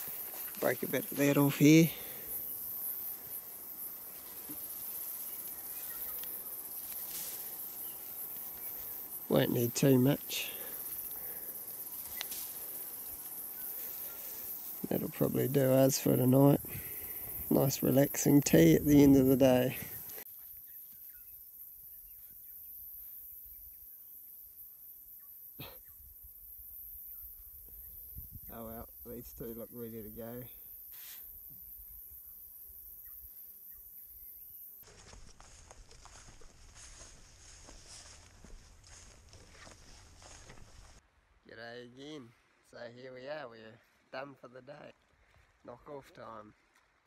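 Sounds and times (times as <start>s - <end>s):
high-pitched insect chorus: 0.0s - 41.0s
faint bird chirps: 4.3s - 6.7s
twigs snapping and rustling: 12.0s - 12.7s.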